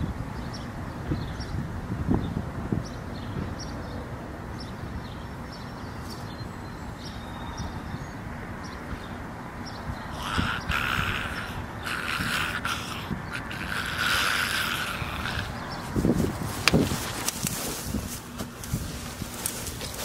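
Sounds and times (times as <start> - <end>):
wind noise on microphone: 0.0 - 20.0
rustling hiss: 10.1 - 20.0.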